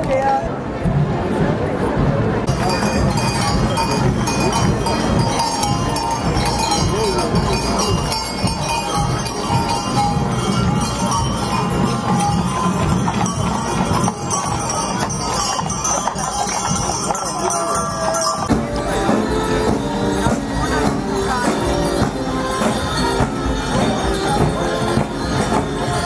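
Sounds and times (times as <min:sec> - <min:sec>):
crowd hubbub: 0:00.0 - 0:26.0
band music: 0:01.4 - 0:26.0
hooves clopping on pavement: 0:02.4 - 0:26.0
harness jingling: 0:02.5 - 0:18.5.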